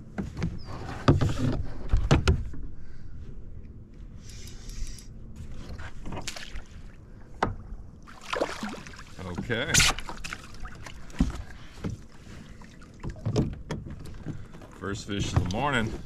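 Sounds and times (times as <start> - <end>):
water splashing and sloshing: 5.4 - 16.0.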